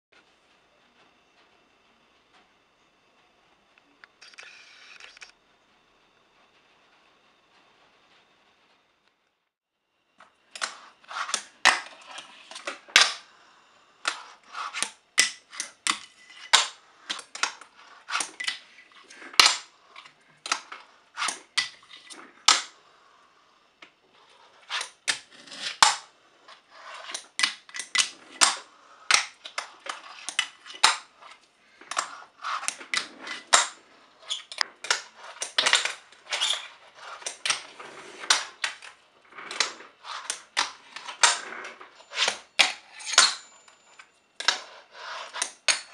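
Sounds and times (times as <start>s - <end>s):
small wheels rolling and grinding: 10.4s - 45.9s.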